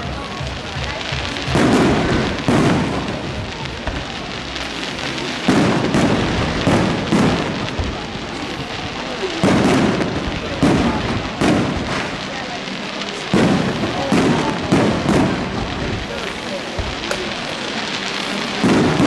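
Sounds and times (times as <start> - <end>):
fireworks bangs: 0.0 - 19.0
fireworks crackling: 0.0 - 19.0.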